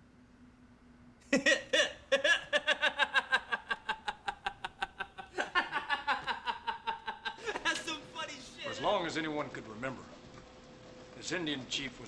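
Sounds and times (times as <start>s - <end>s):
man laughing loudly: 1.3s - 8.0s.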